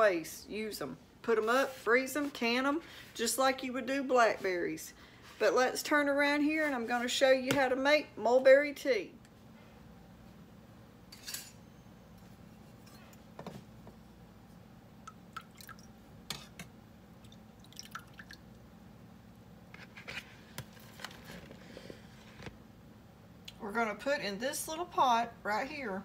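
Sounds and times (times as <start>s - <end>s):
water drips and splashes: 15.0s - 16.0s, 17.2s - 18.6s.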